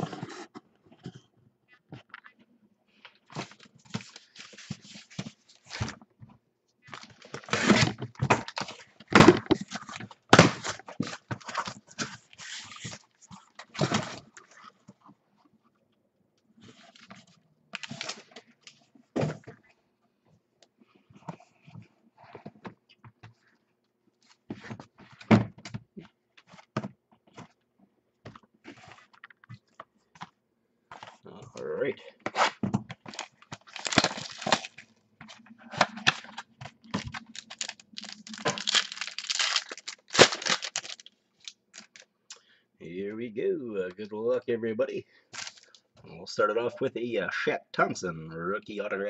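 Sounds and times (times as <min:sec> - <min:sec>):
shrink-wrap rustling: 0:32.5 - 0:42.1, 0:45.4 - 0:45.8.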